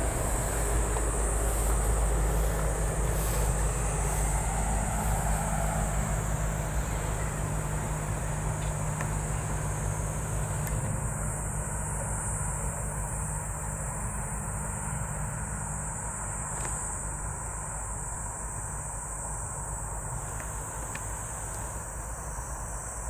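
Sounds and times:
wind on microphone: 0.0s - 8.6s
insects droning: 0.0s - 23.0s.

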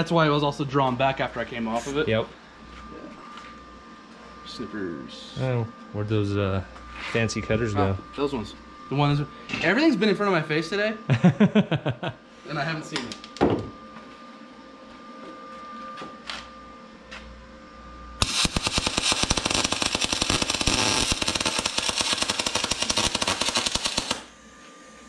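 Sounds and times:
welding arc crackling and popping: 18.2s - 24.4s.

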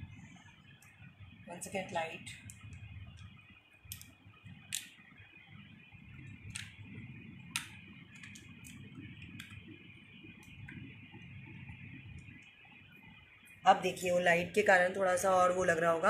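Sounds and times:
faint high whine: 0.0s - 16.0s
smartphone clicks and taps: 6.5s - 6.8s, 7.5s - 9.6s.

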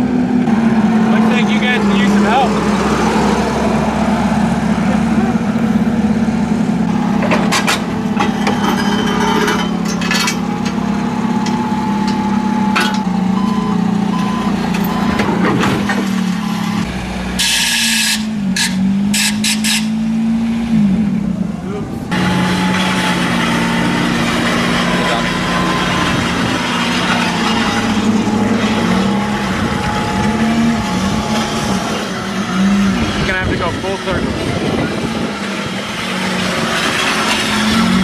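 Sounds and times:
forklift engine running: 0.0s - 38.0s
metal clanks and knocks: 6.9s - 13.1s.

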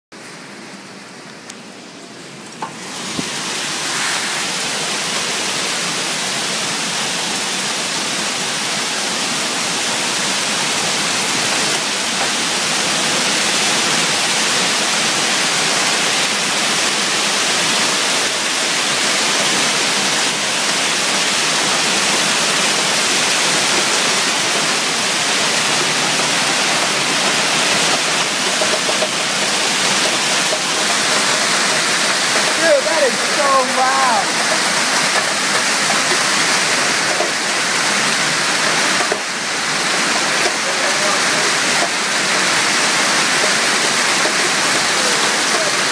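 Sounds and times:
hail pelting pavement and cars: 0.2s - 45.9s.

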